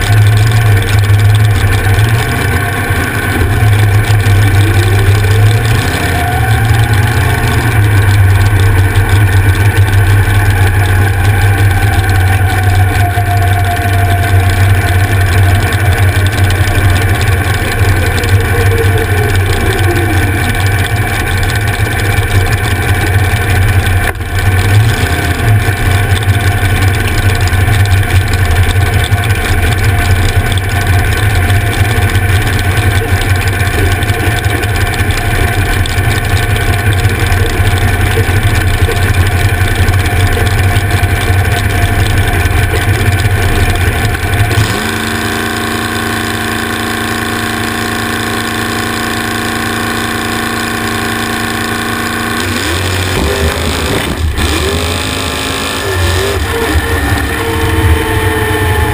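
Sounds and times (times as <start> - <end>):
dragster engine idling roughly: 0.0 - 58.9.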